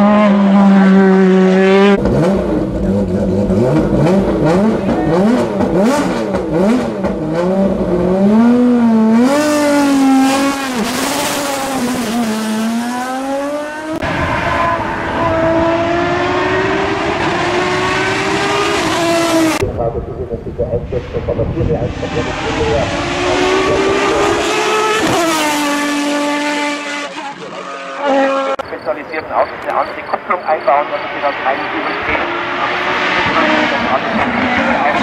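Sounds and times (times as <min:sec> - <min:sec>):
race car engines at high revs: 0:00.0 - 0:19.6, 0:20.8 - 0:35.0
race car accelerating: 0:00.0 - 0:35.0.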